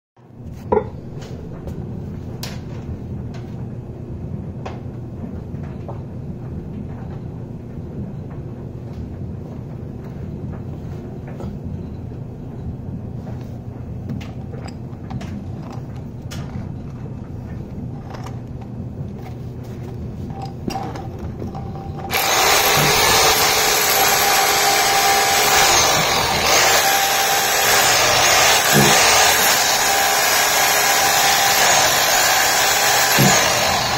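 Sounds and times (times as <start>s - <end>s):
hammer drill chiselling concrete: 22.1s - 33.9s.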